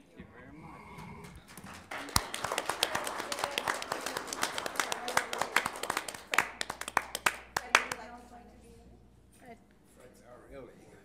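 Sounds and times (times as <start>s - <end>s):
audience clapping: 1.0s - 8.1s.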